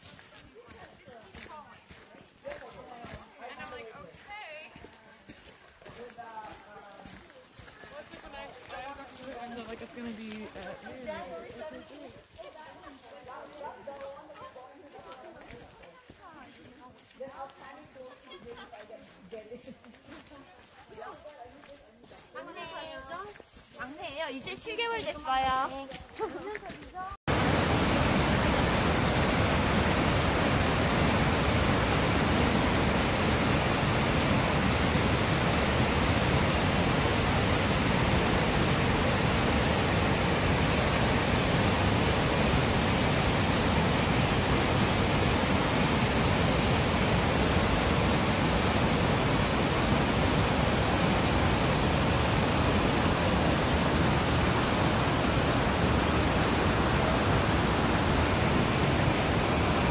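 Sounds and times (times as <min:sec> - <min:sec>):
creek water rushing over weir: 0:27.3 - 0:59.9.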